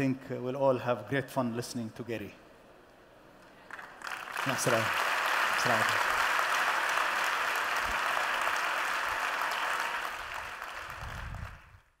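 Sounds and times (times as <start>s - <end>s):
audience applauding: 3.6s - 11.9s.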